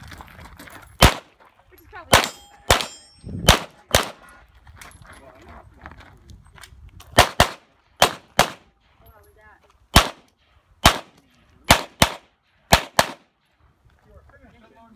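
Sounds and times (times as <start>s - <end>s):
pistol shots: 1.0s - 1.3s, 2.1s - 4.2s, 7.2s - 8.7s, 9.9s - 13.3s.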